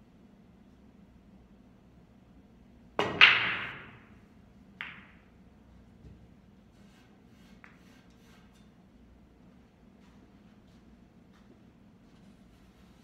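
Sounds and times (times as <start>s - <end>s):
pool balls clacking and scattering: 3.0s - 5.4s
faint ball taps: 4.8s - 5.2s.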